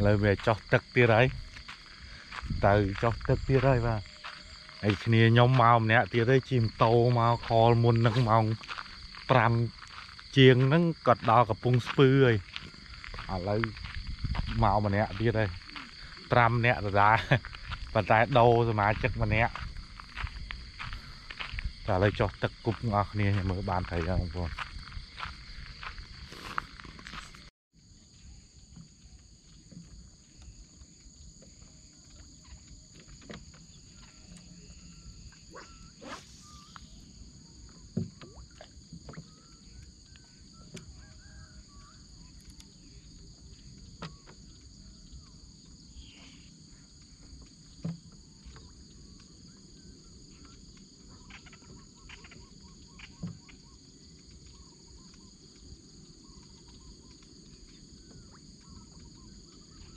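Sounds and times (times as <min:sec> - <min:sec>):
insects droning: 0:00.0 - 0:59.9.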